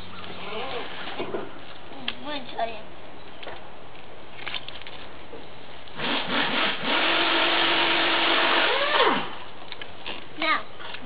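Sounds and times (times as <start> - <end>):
electric toy car motor whining: 6.0 - 9.4
wheels grinding in mud: 6.0 - 11.0.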